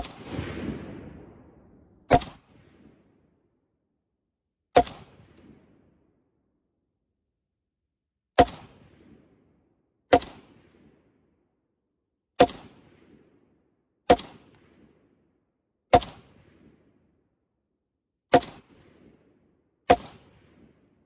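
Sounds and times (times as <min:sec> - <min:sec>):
rifle shots with echo: 0:00.0 - 0:03.4, 0:04.8 - 0:06.2, 0:08.4 - 0:11.2, 0:12.4 - 0:15.2, 0:15.9 - 0:17.0, 0:18.3 - 0:21.0.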